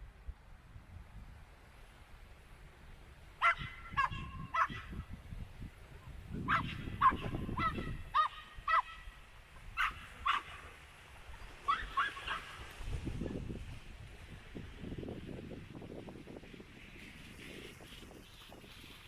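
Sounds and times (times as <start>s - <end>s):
animal calling: 3.4s - 5.0s, 6.5s - 9.2s, 11.4s - 12.6s.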